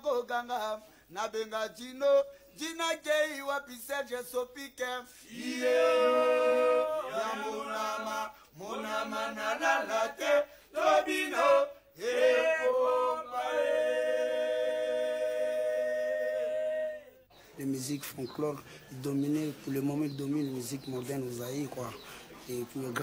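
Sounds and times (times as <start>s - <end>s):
man singing unaccompanied: 0.0s - 12.4s
short breaths: 0.8s - 1.1s, 5.1s - 5.3s, 10.5s - 10.7s, 18.6s - 18.9s, 22.0s - 22.4s.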